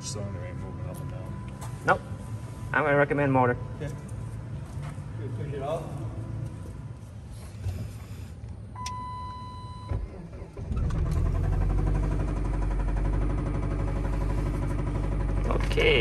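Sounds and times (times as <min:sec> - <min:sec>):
electronic warning chime: 0:08.8 - 0:10.0
car engine knocking: 0:11.2 - 0:16.0.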